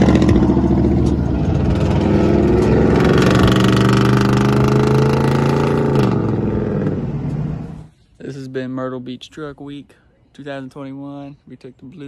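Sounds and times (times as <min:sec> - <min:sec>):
vehicle engine accelerating: 0:00.0 - 0:07.9.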